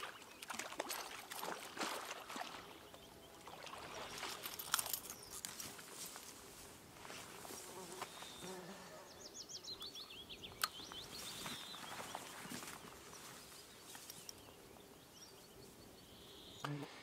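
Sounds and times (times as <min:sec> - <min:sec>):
songbird singing: 0:00.0 - 0:17.0
footsteps rustling through grass: 0:05.1 - 0:08.5, 0:10.9 - 0:14.3.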